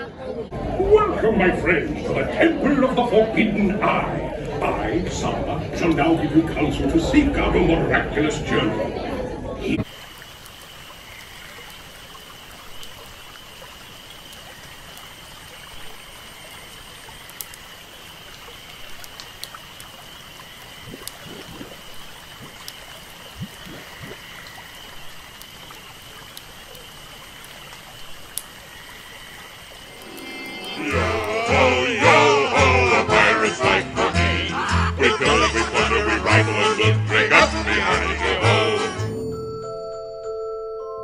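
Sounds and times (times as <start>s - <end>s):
water trickling and lapping: 9.8s - 31.4s
music: 29.9s - 41.0s.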